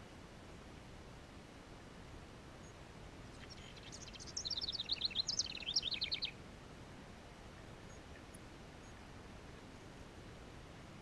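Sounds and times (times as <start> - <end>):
wren singing: 2.6 - 6.4.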